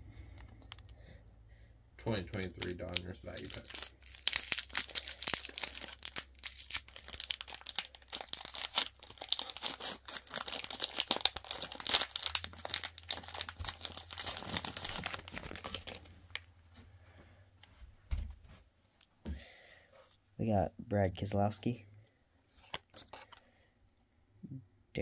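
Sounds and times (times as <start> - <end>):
plastic wrapper tearing and crinkling: 0.3 - 1.0, 2.4 - 16.5, 22.6 - 23.4.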